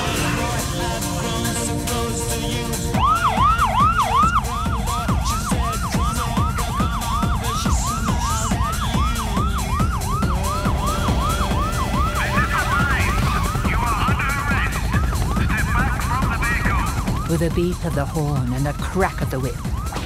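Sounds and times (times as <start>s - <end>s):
siren yelping: 2.0s - 20.0s
steady low rumble: 4.6s - 20.0s.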